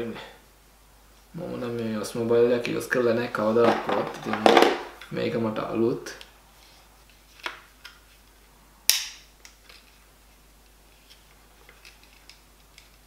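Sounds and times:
sharp plastic snap: 8.9 - 9.6.

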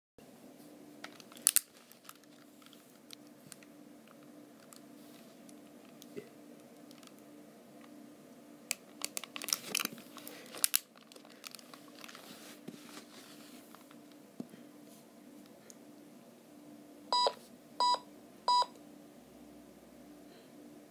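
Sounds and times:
faint steady hum: 0.2 - 20.9
toy being handled rustling: 1.0 - 6.2, 8.8 - 14.2.

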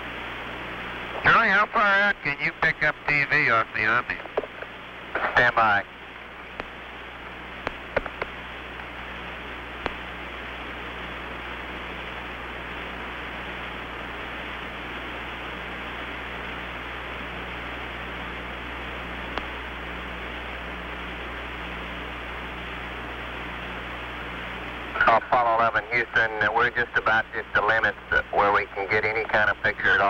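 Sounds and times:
low hum: 0.0 - 26.1
radio static hiss: 0.0 - 30.0
sharp radio clicks: 1.1 - 5.9, 6.5 - 6.8, 7.6 - 9.0, 9.8 - 10.2, 19.3 - 19.7.

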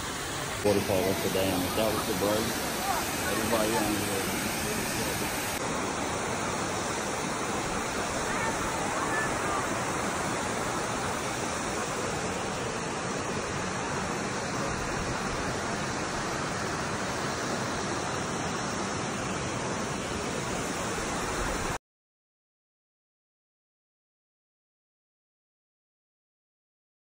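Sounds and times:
waterfall and creek over rocks: 0.0 - 21.8.

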